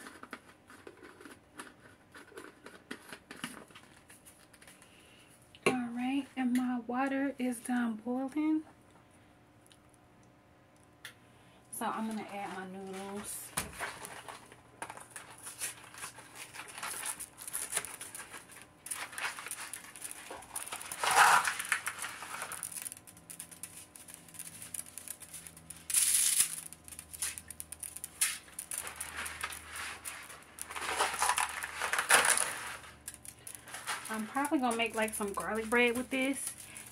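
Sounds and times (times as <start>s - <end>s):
dry pasta clicking: 0.0s - 4.8s, 14.1s - 36.9s
packaging rustling: 12.1s - 36.9s.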